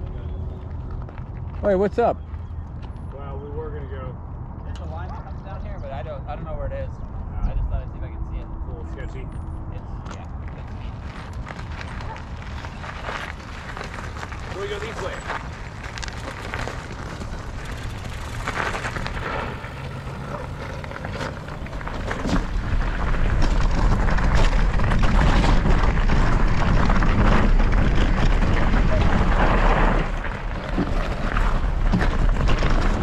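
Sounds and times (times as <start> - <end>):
wind rumble on microphone: 2.2 - 33.0
bike rattles: 10.1 - 33.0
tyres crunching on gravel: 10.4 - 33.0.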